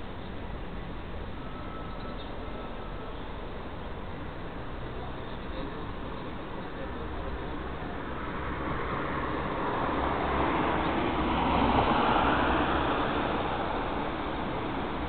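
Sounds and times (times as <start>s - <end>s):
vehicle passing by: 8.3s - 15.0s.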